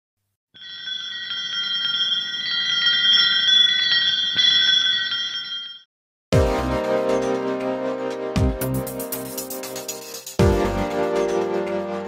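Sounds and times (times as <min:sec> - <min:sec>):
shimmering bell chimes: 0:00.6 - 0:05.9.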